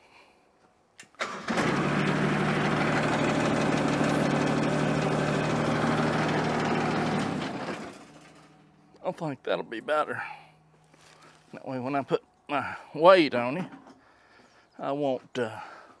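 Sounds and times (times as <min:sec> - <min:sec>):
motor running: 0:01.5 - 0:08.5.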